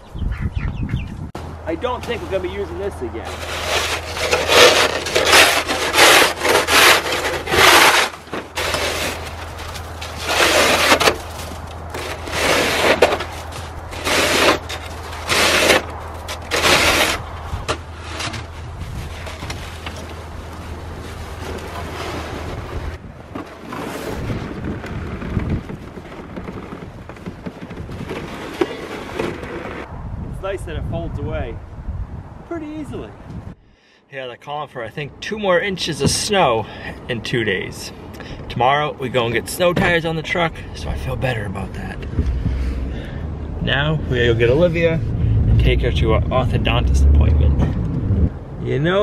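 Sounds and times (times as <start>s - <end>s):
low rumbling: 0.0s - 32.5s, 40.5s - 49.0s
snow shovel scraping: 2.3s - 17.2s, 21.0s - 25.4s, 27.9s - 29.9s.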